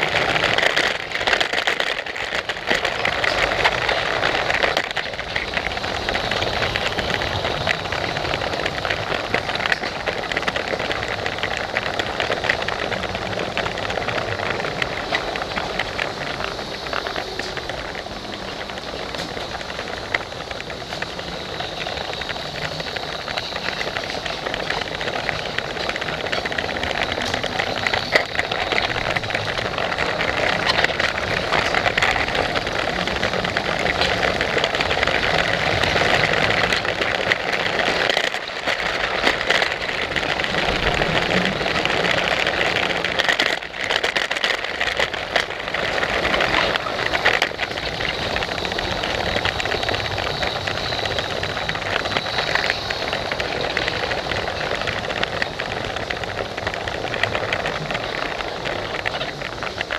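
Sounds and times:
faint wheel clicks: 0:00.0 - 0:59.9
toy train motor whirring: 0:00.0 - 0:59.9.

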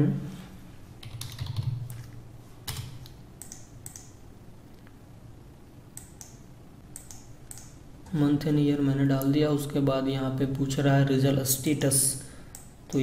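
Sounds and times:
computer mouse clicks: 0:02.7 - 0:04.2, 0:06.0 - 0:07.8.

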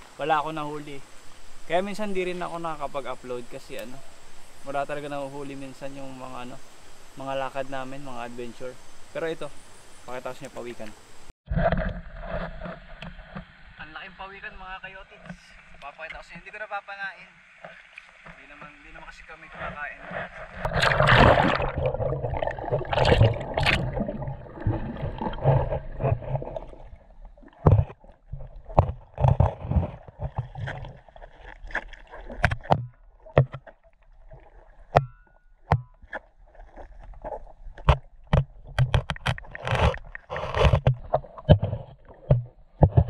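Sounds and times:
underwater rush of water: 0:15.2 - 0:35.1
sharp underwater clicks: 0:20.5 - 0:34.1, 0:34.9 - 0:43.0.

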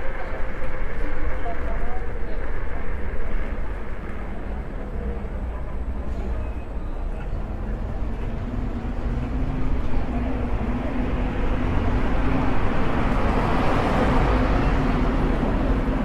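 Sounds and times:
scooter rolling noise and hum: 0:00.0 - 0:05.8
passing traffic: 0:00.0 - 0:16.0.

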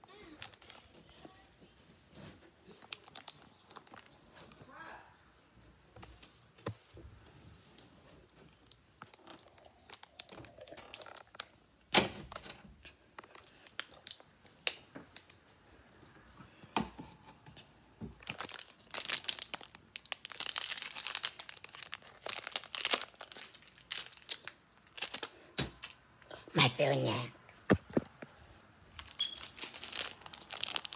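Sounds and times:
plastic snack pouch crinkling: 0:00.3 - 0:01.1, 0:02.7 - 0:04.2, 0:08.6 - 0:11.6, 0:13.2 - 0:15.4, 0:18.2 - 0:26.0, 0:28.9 - 0:30.9.

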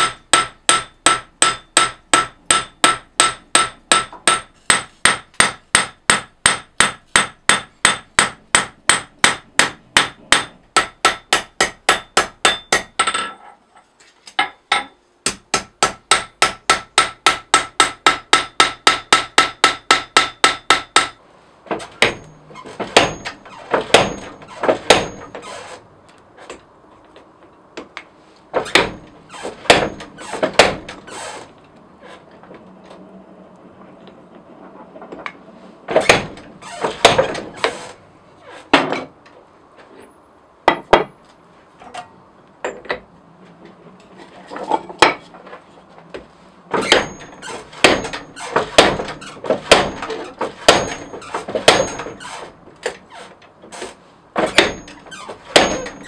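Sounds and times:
hammer striking blade on anvil: 0:54.5 - 0:56.0.

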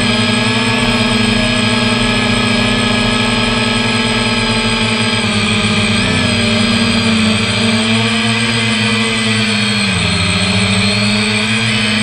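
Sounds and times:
drone motors and propellers whining: 0:00.0 - 0:12.0.

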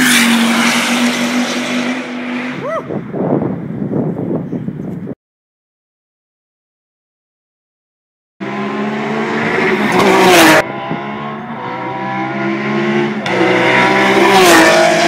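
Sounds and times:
race car passing at high speed: 0:00.0 - 0:02.7, 0:08.4 - 0:15.0.

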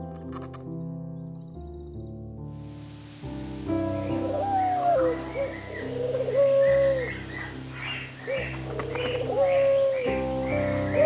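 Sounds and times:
pigeons cooing: 0:04.0 - 0:11.0.

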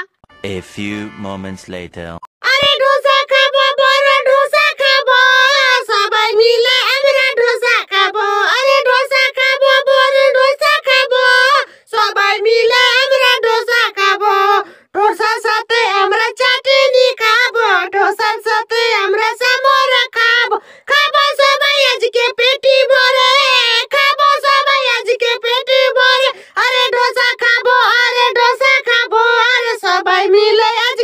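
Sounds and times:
high-pitched voice singing: 0:00.0 - 0:11.6.

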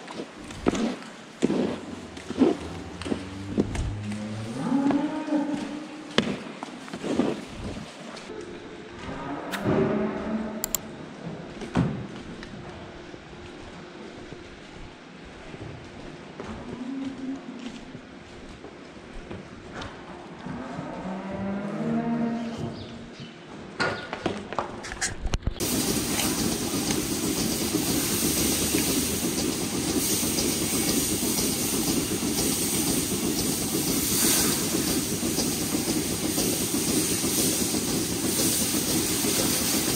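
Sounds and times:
water hose hissing: 0:25.6 - 0:39.9.

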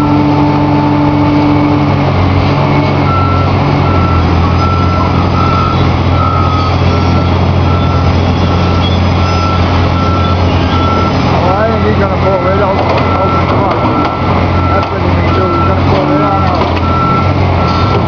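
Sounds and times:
excavator diesel engine running: 0:00.0 - 0:18.0
reversing alarm beeping: 0:03.0 - 0:18.0.

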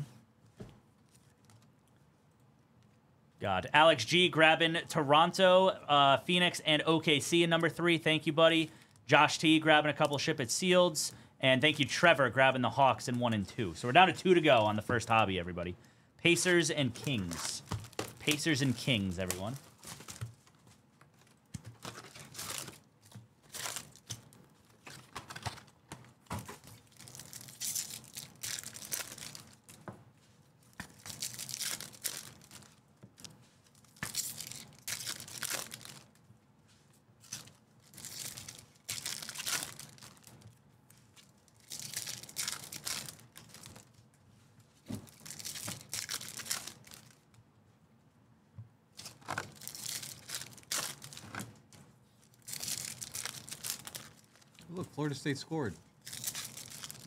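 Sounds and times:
foil wrappers tearing and crinkling: 0:21.8 - 0:25.6, 0:26.6 - 0:29.8, 0:30.8 - 0:32.8, 0:33.7 - 0:36.2, 0:37.2 - 0:40.4, 0:41.6 - 0:44.0, 0:45.0 - 0:47.2, 0:49.0 - 0:51.4, 0:52.2 - 0:54.6, 0:56.0 - 0:57.0.

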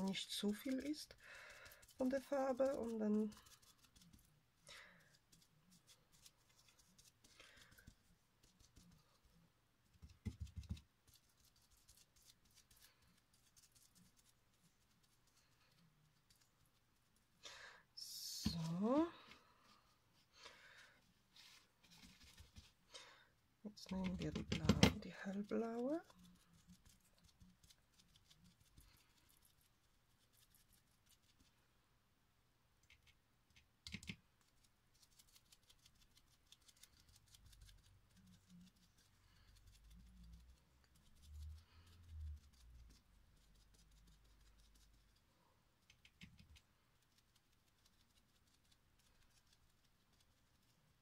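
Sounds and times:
sponge dabbing on glass: 0:00.0 - 0:17.3, 0:23.9 - 0:31.5.

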